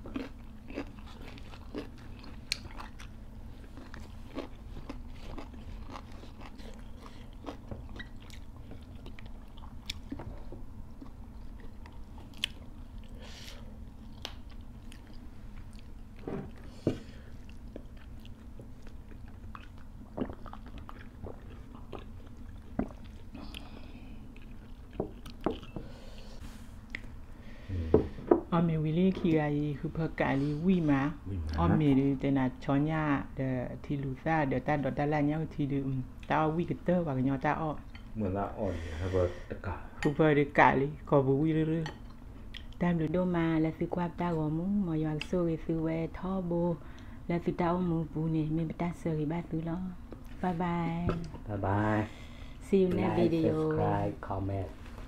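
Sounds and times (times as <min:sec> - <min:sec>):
chewing crunchy vegetables: 0:00.0 - 0:25.8.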